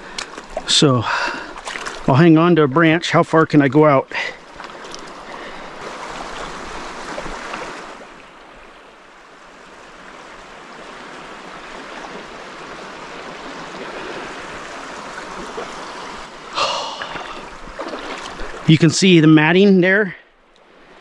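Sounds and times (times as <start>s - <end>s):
water splashing around boots: 0.0s - 2.3s, 4.2s - 8.2s, 11.7s - 18.8s
creek water running: 0.0s - 21.0s.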